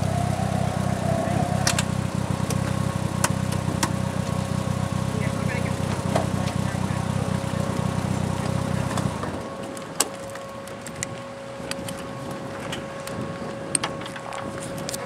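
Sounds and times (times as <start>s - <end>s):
thin whine: 0.0s - 4.5s
car engine idling: 0.0s - 15.0s.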